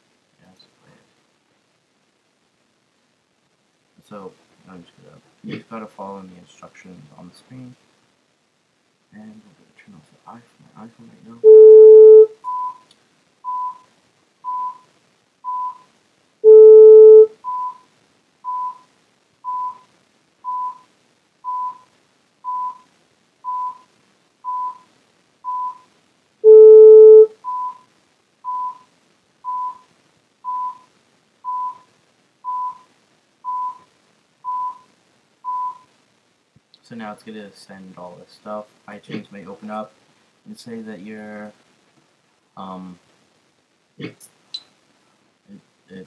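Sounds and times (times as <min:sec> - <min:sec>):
short high computer beeps: 0:11.4 - 0:12.8, 0:14.5 - 0:14.8, 0:15.5 - 0:15.8, 0:16.4 - 0:17.8, 0:19.5 - 0:19.8, 0:20.5 - 0:20.8, 0:24.5 - 0:24.9, 0:25.5 - 0:27.8, 0:28.5 - 0:28.9, 0:29.5 - 0:29.9, 0:30.5 - 0:30.9
long low tone: 0:16.4 - 0:17.3, 0:26.4 - 0:27.3.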